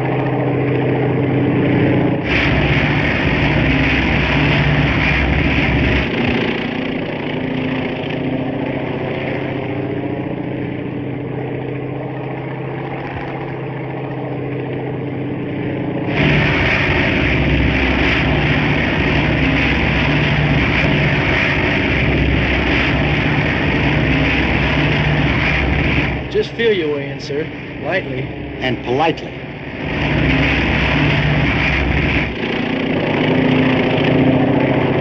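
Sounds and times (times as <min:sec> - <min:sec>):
piston aircraft engine droning: 0:00.0 - 0:35.0.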